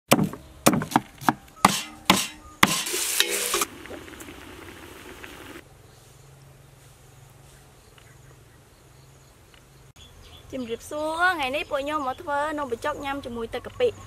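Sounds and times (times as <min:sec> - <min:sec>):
knife chopping on wooden board: 0:00.1 - 0:02.8
food sizzling in hot oil: 0:02.6 - 0:05.6.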